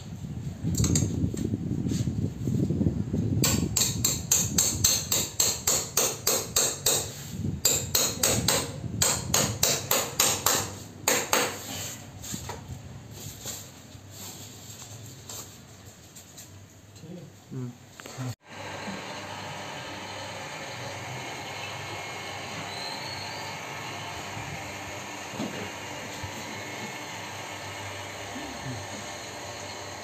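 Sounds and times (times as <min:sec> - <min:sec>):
hammer striking nail: 0:03.4 - 0:11.6.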